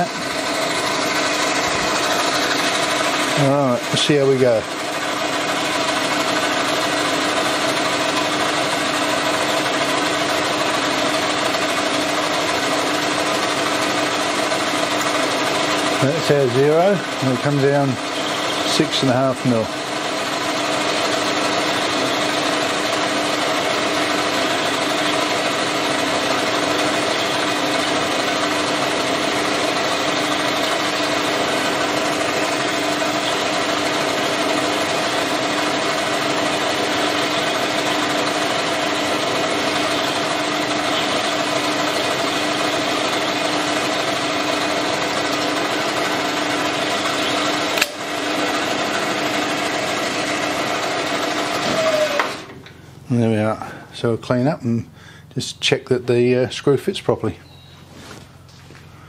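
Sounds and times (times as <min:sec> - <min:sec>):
machine spindle humming: 0:00.0 - 0:54.2
sharp click: 0:47.8 - 0:48.0.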